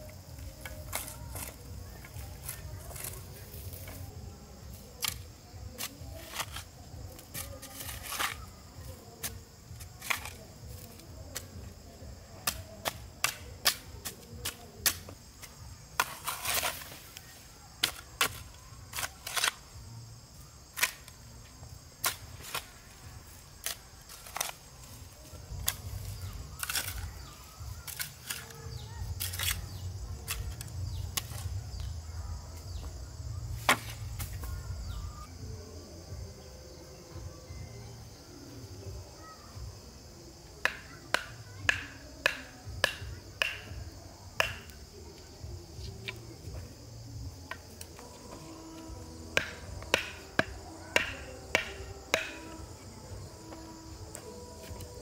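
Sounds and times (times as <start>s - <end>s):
soil scraping: 0.0s - 20.0s, 22.0s - 31.9s
hoe chopping into soil: 33.6s - 34.4s, 48.7s - 52.6s.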